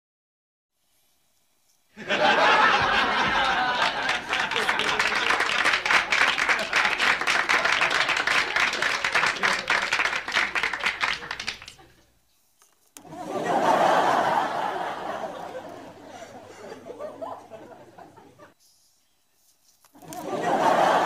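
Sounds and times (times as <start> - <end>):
crowd cheering: 2.0 - 12.0, 13.1 - 18.3, 20.1 - 21.0
crowd applauding: 2.1 - 12.0.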